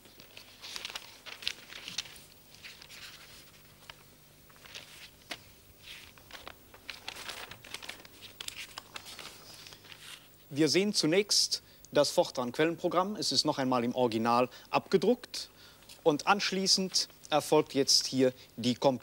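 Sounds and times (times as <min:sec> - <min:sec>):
paper rustling and crinkling: 0:00.0 - 0:10.3
faint low hum: 0:00.0 - 0:19.0.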